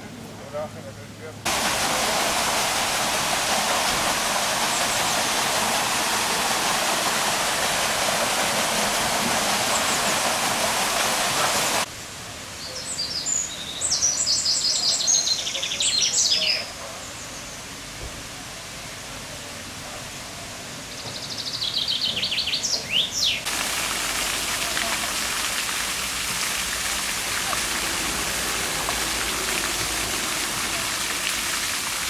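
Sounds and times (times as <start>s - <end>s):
water rushing through waterwheel: 1.4s - 12.5s, 22.0s - 32.0s.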